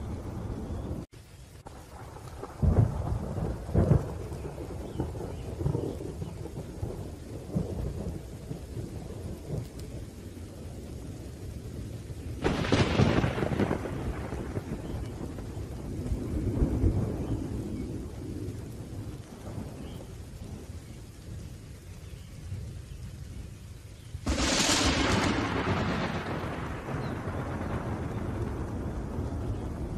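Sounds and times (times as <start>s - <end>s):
low rumbling thunder: 0.0s - 29.9s
steady rain: 0.0s - 29.9s
sharp thunderclap: 2.0s - 9.8s, 12.4s - 20.7s, 24.2s - 29.9s.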